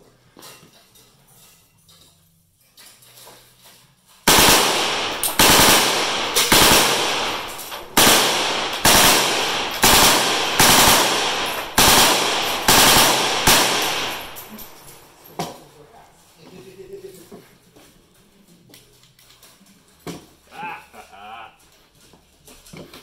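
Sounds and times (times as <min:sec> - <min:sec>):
rifle shots echoing: 0:04.3 - 0:15.4.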